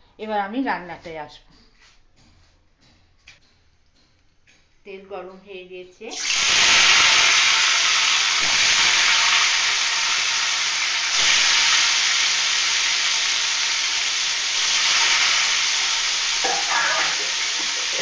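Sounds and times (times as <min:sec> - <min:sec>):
fish sizzling in hot oil: 0:06.1 - 0:18.0.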